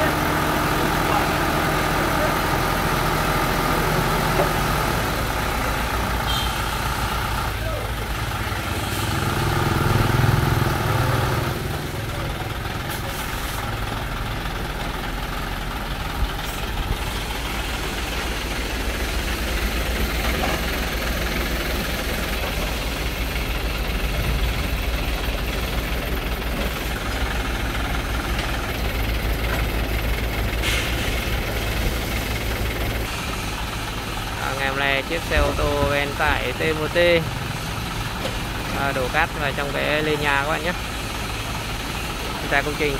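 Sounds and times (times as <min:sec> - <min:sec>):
dump truck diesel engine running: 0:00.0 - 0:42.9.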